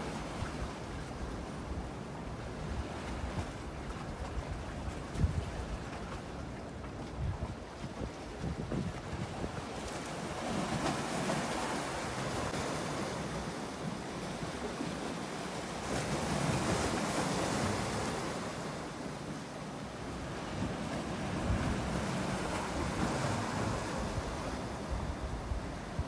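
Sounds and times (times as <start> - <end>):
sea waves washing: 0.0 - 26.0
wind on microphone: 2.6 - 10.8, 20.2 - 26.0.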